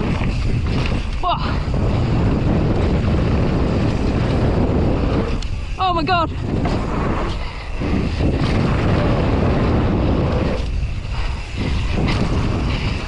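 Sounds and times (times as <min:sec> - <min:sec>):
bike tyres rolling on dirt: 0:00.0 - 0:13.0
wind rushing over microphone: 0:00.0 - 0:13.0.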